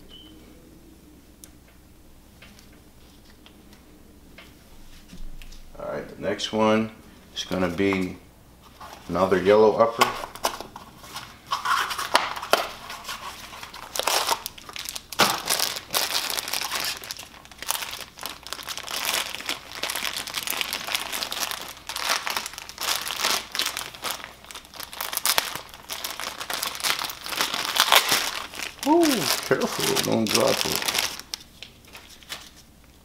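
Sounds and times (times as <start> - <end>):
plastic packaging crinkling: 10.2 - 33.0.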